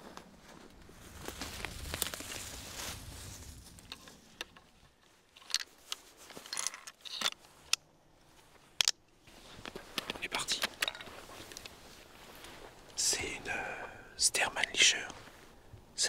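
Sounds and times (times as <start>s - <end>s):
footsteps in dry leaves: 0.0s - 4.3s.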